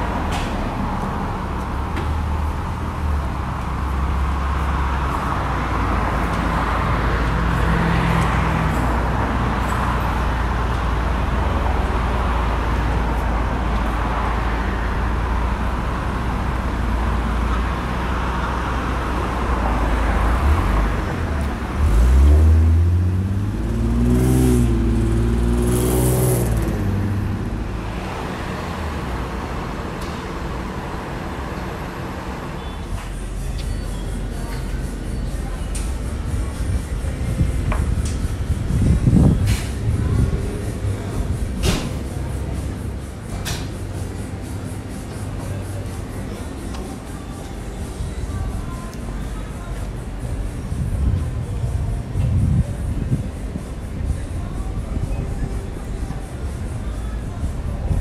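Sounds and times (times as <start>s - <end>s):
road noise: 0.0s - 58.0s
vehicle engine rumbling: 0.0s - 58.0s
engine revving: 20.3s - 32.4s.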